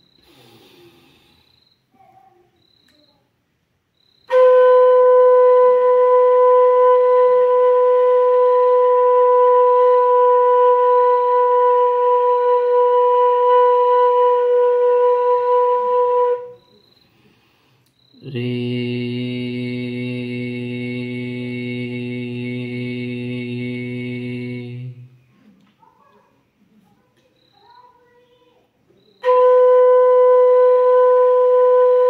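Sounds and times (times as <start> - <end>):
bamboo flute holding a note: 4.3 - 16.8, 29.2 - 32.0.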